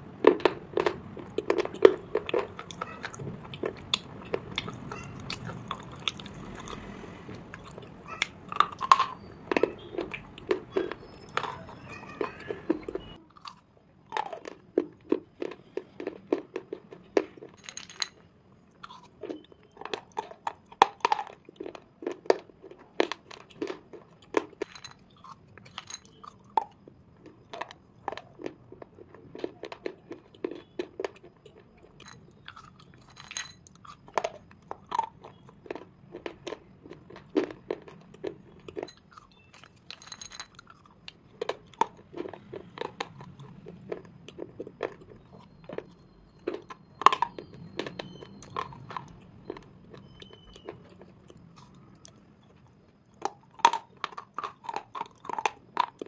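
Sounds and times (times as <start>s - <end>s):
person biting and chewing crunchily: 0.2s - 11.9s, 13.1s - 17.5s, 18.8s - 22.2s, 32.4s - 33.1s, 33.7s - 39.9s.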